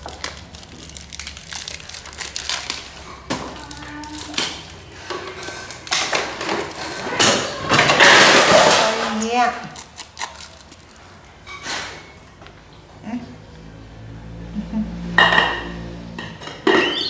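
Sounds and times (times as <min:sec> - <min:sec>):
crinkling rustling handling noise: 0:00.0 - 0:07.1, 0:08.1 - 0:12.6.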